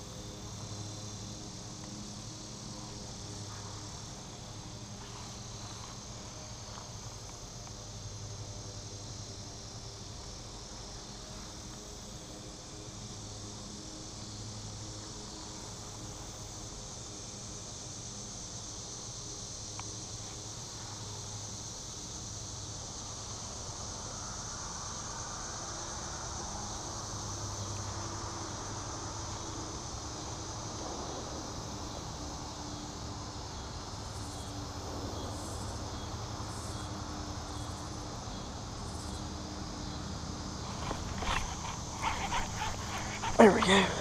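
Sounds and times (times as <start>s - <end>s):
insect chorus trilling: 39.8s - 44.0s.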